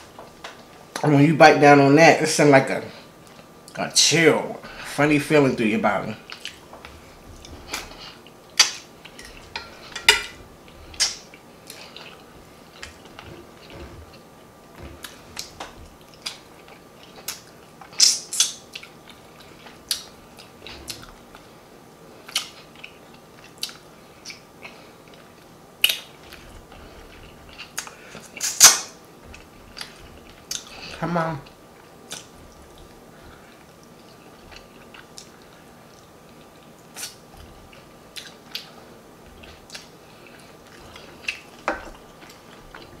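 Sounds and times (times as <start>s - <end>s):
mouth smacking and chewing: 6.3s - 6.7s, 15.0s - 21.5s, 22.2s - 43.0s.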